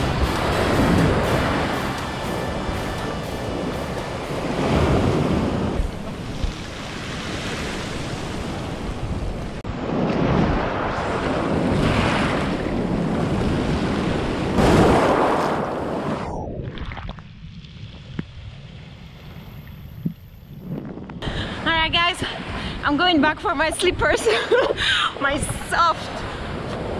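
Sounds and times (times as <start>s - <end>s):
wind buffeting microphone: 0.0s - 26.9s.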